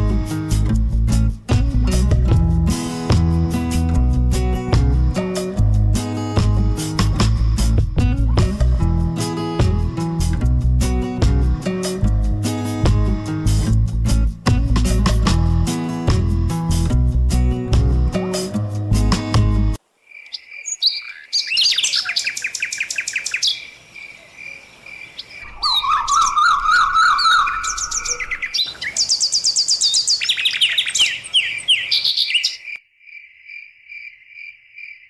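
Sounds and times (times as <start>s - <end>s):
music: 0.0s - 19.8s
birds chirping and trilling: 20.0s - 33.2s
steady high chirp: 25.4s - 32.8s.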